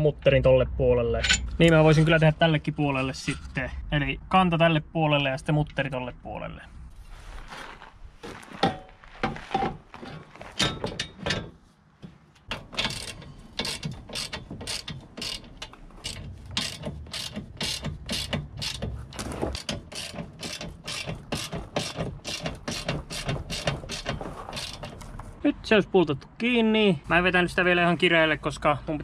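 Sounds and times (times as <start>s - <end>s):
ratchet wrench clicking: 12.5s - 18.9s, 19.6s - 25.0s.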